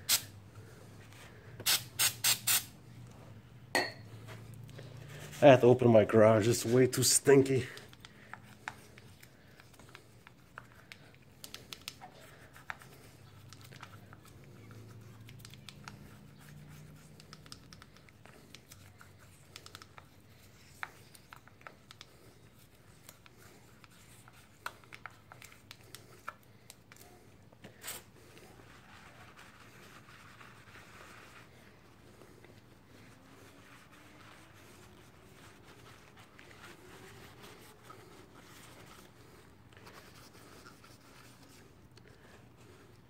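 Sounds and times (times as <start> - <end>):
paper towel rubbing: 27.8 - 42.8
gloved hands scrubbing a part: 27.8 - 43.0.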